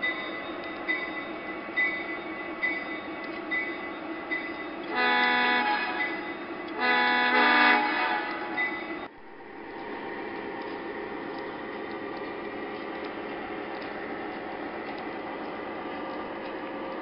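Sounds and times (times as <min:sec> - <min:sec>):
model train rumbling on track: 0:00.0 - 0:17.0
train horn blasts: 0:04.9 - 0:06.2, 0:06.8 - 0:08.8
faint clicks of wheels: 0:09.7 - 0:17.0.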